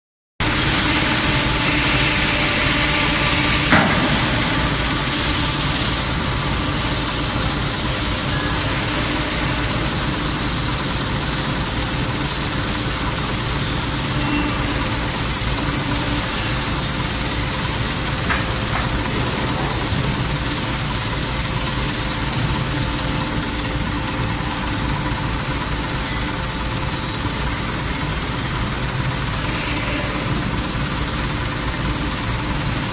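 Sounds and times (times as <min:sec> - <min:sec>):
factory machinery humming: 0:00.4 - 0:32.9
sharp knock: 0:03.7 - 0:04.9.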